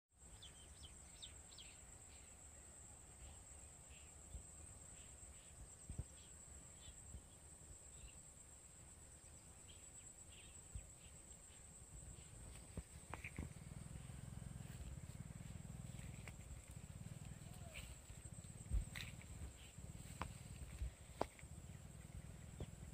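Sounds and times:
high insect buzz: 4.0s - 22.9s
bird chirps: 9.5s - 22.9s.

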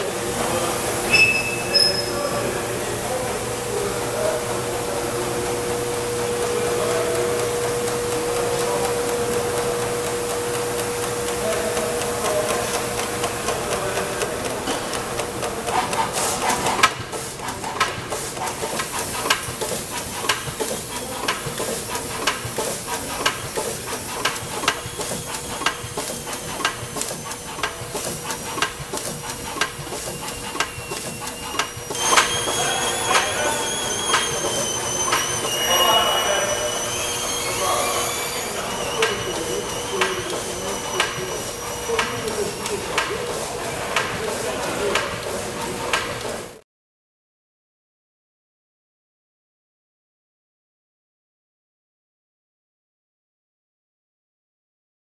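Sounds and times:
machine noise with held tone: 0.0s - 46.6s
hiss with high whistling tones: 0.5s - 3.9s, 23.6s - 28.0s, 29.8s - 42.6s
rapid irregular machine clicking: 5.4s - 35.6s, 38.1s - 46.6s.

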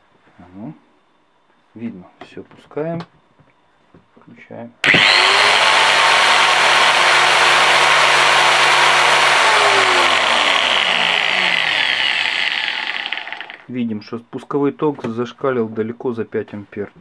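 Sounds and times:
angle grinder whining: 4.8s - 13.7s.

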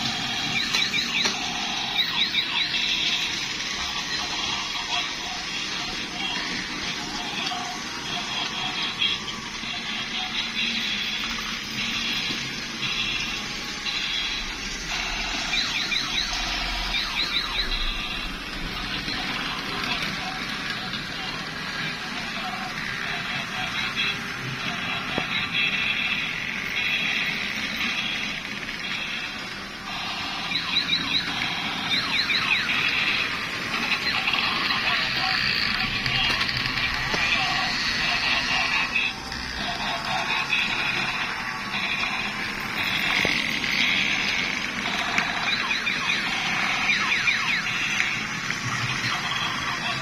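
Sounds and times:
crackly buzzing electronic noise: 0.0s - 50.0s.

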